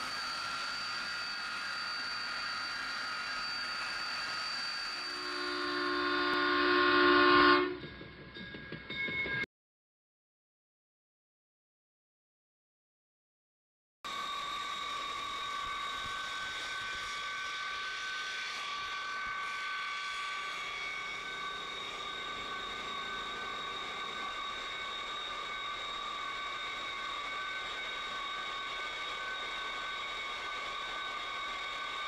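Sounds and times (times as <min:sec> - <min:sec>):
jet engine whine and hiss: 0:00.0 - 0:06.5, 0:14.1 - 0:32.0.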